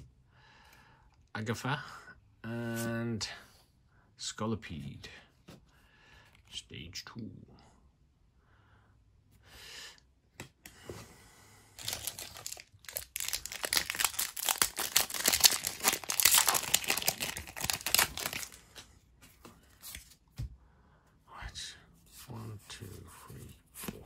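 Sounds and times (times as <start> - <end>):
foil wrapper crinkling and tearing: 11.8 - 18.8.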